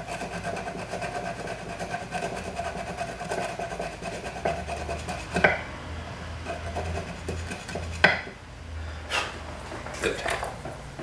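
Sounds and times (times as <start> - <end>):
sanding metal by hand: 0.0 - 5.5, 6.5 - 8.1.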